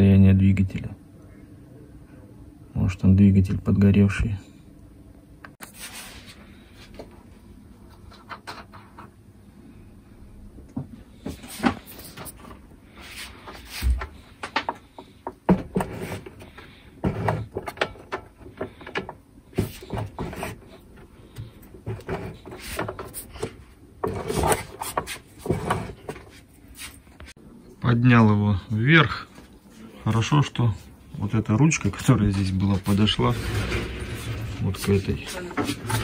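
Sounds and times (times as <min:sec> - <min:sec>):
knocks and clatter of machine parts: 0:17.0 - 0:26.3.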